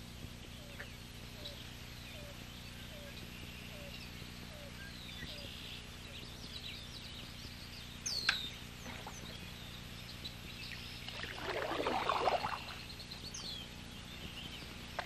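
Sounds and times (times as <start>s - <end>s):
small bird chirps: 0.6s - 11.2s
paddle splashing through water: 11.1s - 12.8s.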